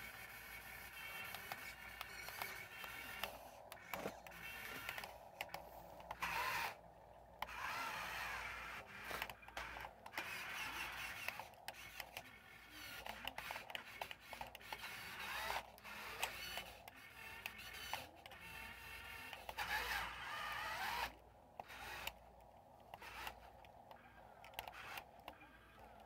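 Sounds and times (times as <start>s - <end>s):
electric motor whirring: 0.0s - 22.3s, 22.9s - 26.0s
clicks: 0.9s - 7.6s, 21.0s - 26.0s.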